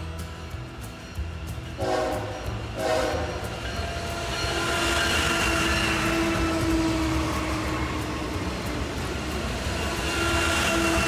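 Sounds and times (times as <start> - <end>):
locomotive engine and rail rumble: 0.0 - 11.0
train horn blast: 1.8 - 8.4, 9.8 - 11.0.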